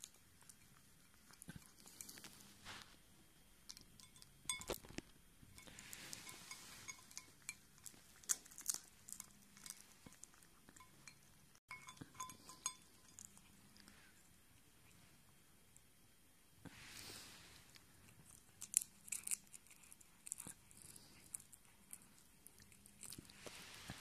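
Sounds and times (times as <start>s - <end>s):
cat crunching food: 3.6s - 15.0s, 17.0s - 24.0s
clinks against cat bowl: 3.7s - 7.7s, 9.1s - 13.4s.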